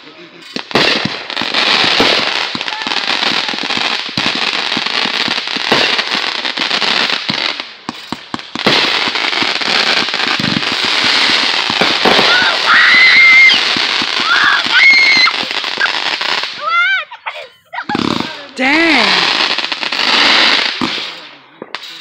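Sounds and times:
fireworks popping and crackling: 0.0 - 22.0
firework bang: 0.6 - 6.1, 7.2 - 16.7
high firework whistle: 12.0 - 16.0.

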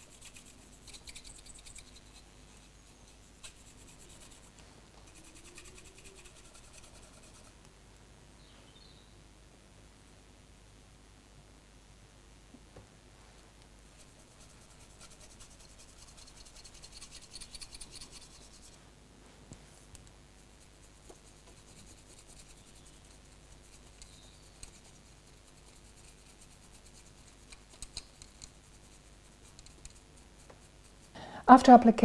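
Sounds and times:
paintbrush scratchy brushing: 0.0 - 7.6, 13.9 - 18.9, 19.6 - 31.2.

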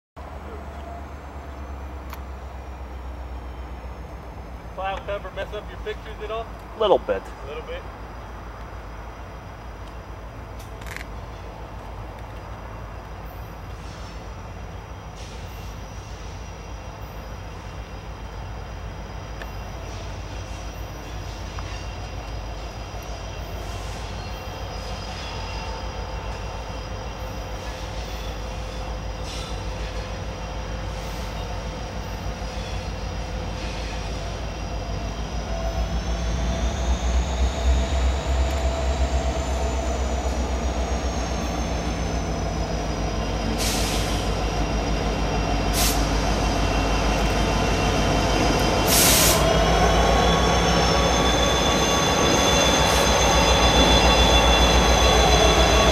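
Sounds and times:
diesel locomotive engines rumbling: 0.2 - 55.9
high wheel squeal: 19.5 - 55.9.

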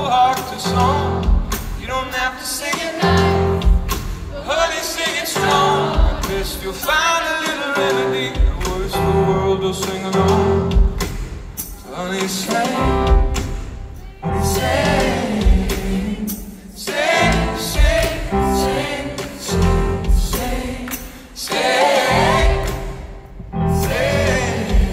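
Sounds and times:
man singing into microphone: 0.0 - 3.2, 4.5 - 10.8, 11.8 - 13.3
live band music: 0.0 - 24.9.

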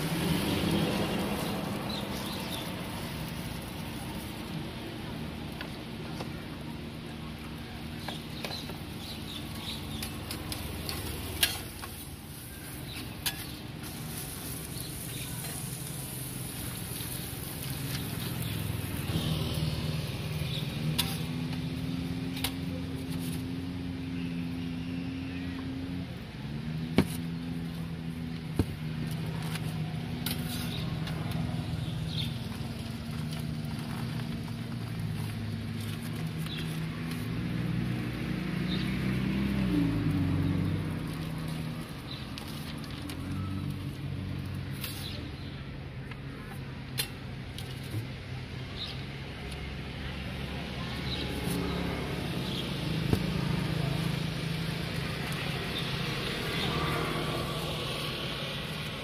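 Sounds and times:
sizzling on griddle: 0.0 - 5.6, 8.1 - 22.2.

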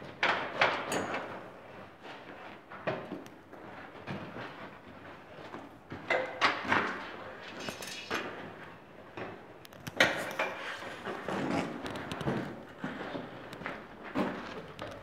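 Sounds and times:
tools knocking and scraping: 6.0 - 13.3.

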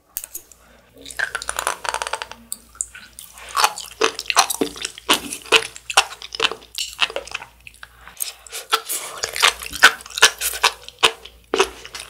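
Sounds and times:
chewing with wet popping clicks: 2.6 - 12.0.

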